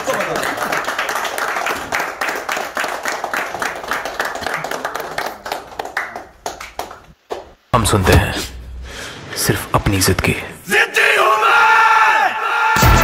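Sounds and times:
people clapping: 0:00.0 - 0:07.6.

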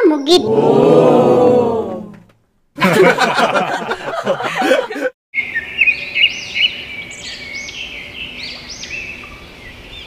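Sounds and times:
birds chirping: 0:05.4 - 0:10.0.

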